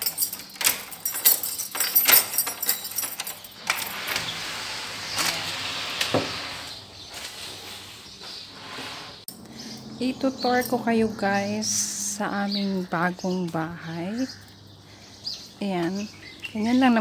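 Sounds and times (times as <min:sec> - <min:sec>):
keys jangling in door lock: 0:00.0 - 0:04.3.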